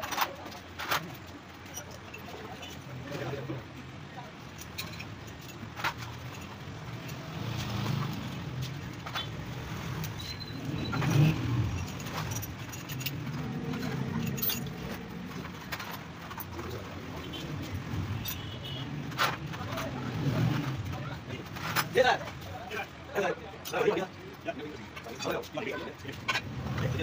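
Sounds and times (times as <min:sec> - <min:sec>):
metallic clinks of engine parts: 0:00.0 - 0:27.0
low engine rumble: 0:01.1 - 0:22.6.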